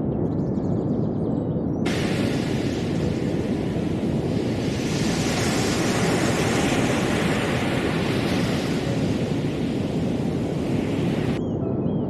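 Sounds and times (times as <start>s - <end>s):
waves breaking on sandy beach: 1.9s - 11.4s.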